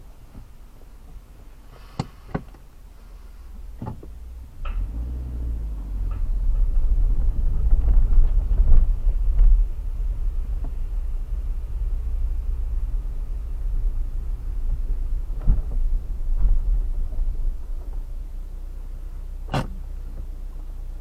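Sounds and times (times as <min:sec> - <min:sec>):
engine and tyres rumbling: 0:00.0 - 0:21.0
car door shutting: 0:01.8 - 0:02.7, 0:03.6 - 0:09.0, 0:19.4 - 0:20.3
car door handle clicks: 0:19.5 - 0:19.8.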